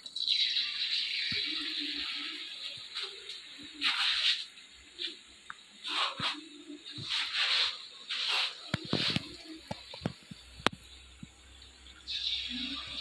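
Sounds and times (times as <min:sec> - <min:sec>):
banana slices sizzling in oil: 0:00.0 - 0:13.0.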